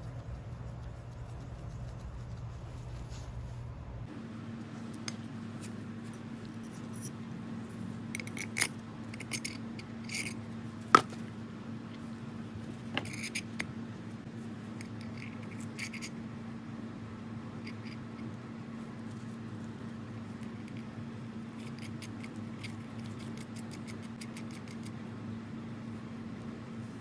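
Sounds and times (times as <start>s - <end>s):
steady low hum: 0.0s - 27.0s
metal parts clicking and scraping: 6.1s - 7.2s, 8.1s - 10.4s, 12.9s - 13.7s, 14.8s - 16.2s, 17.6s - 18.3s.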